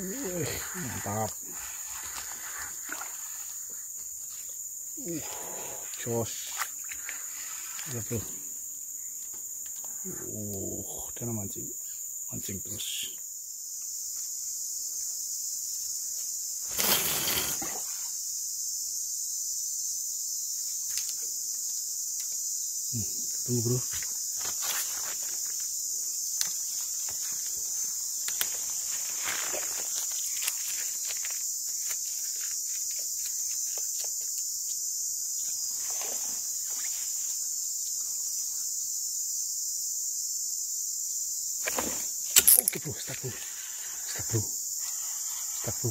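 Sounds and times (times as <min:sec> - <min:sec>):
forest insects droning: 0:00.0 - 0:45.9
handling rustle: 0:26.7 - 0:34.3.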